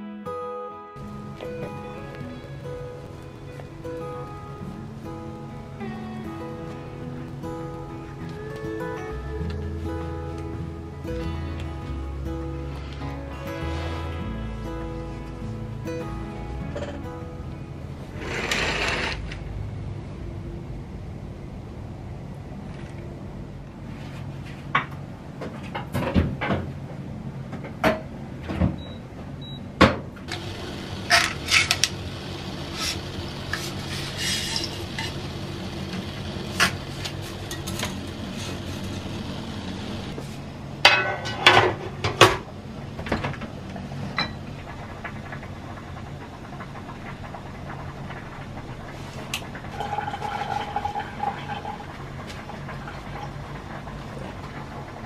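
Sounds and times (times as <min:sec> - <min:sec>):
pots and pans clattering: 0:16.7 - 0:17.0, 0:32.8 - 0:35.2, 0:36.5 - 0:39.2, 0:40.8 - 0:43.4, 0:44.1 - 0:45.3, 0:49.2 - 0:55.0
steady low hum: 0:30.3 - 0:55.0.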